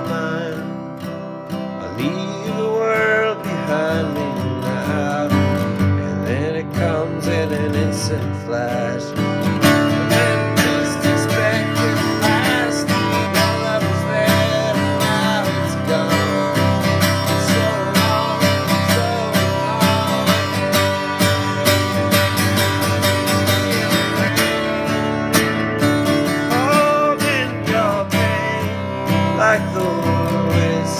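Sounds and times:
acoustic guitar strumming: 0.0s - 30.9s.

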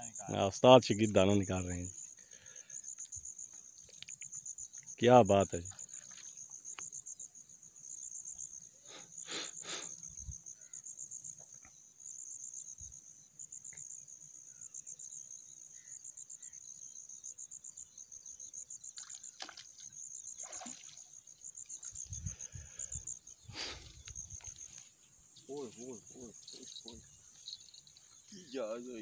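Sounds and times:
insects chirping trill: 0.0s - 29.0s
water splashes: 19.0s - 21.2s.

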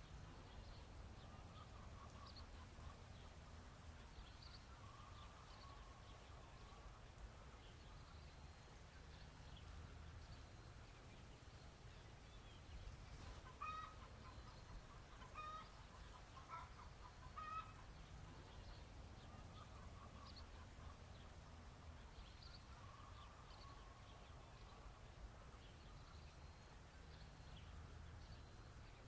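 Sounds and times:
fowl calling: 13.4s - 17.9s.

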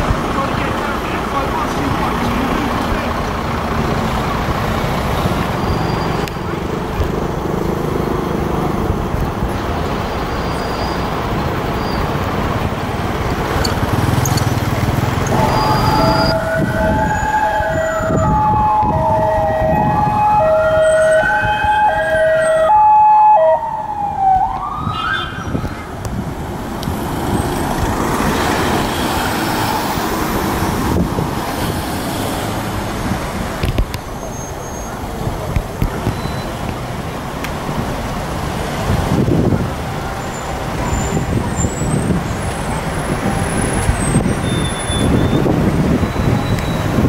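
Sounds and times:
traffic and vehicle engines: 0.0s - 47.0s
hi-lo siren tone: 15.3s - 25.6s
wailing siren: 15.3s - 25.8s.

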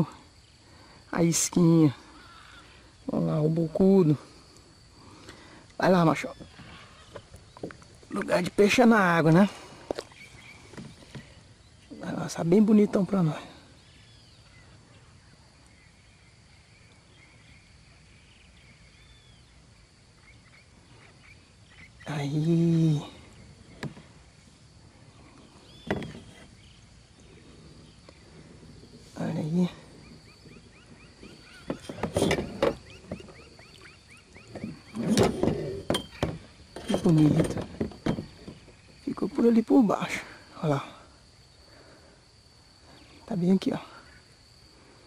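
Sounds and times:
high insect drone: 0.0s - 45.0s
kayak paddle strokes: 29.9s - 38.9s.

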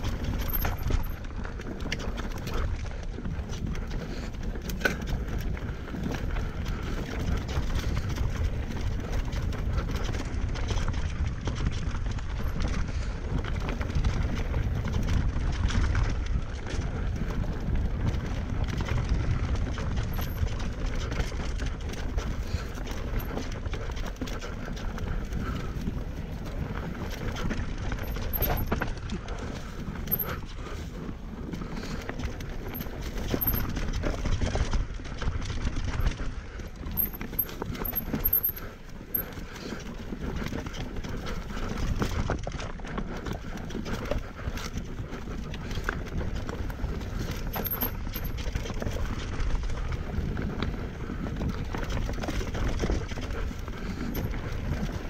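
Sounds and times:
bike clattering and rattling: 0.0s - 55.0s
tyre and wind noise: 0.0s - 55.0s.

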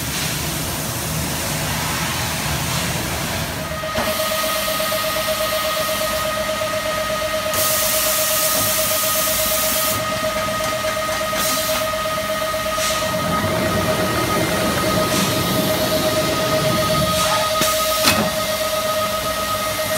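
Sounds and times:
machine high whine: 1.0s - 19.9s
compressed air hissing bursts: 7.5s - 10.1s, 12.6s - 13.2s.

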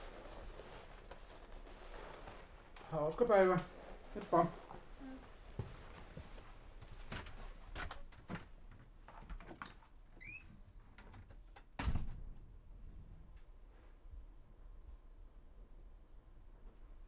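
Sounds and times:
door squeak: 10.2s - 10.5s
door closing thump: 11.8s - 12.3s.

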